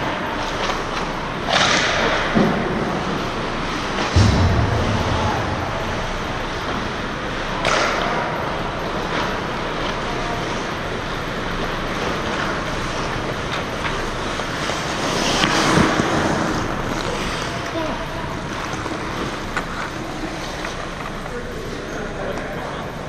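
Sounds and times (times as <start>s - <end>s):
skates scraping ice: 0.0s - 4.1s, 8.8s - 22.7s.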